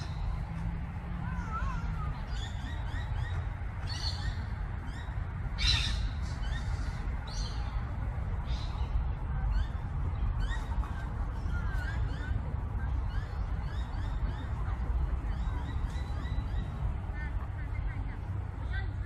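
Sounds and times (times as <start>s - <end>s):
birds chirping: 0.0s - 18.8s.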